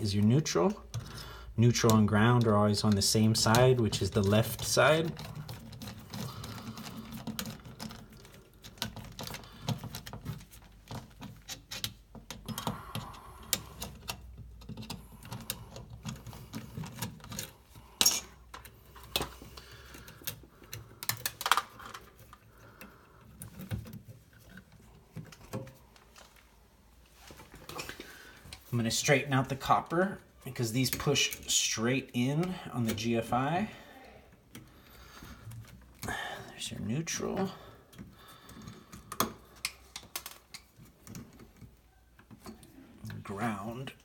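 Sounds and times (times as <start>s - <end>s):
small metal clicks and scrapes: 1.7s - 26.4s.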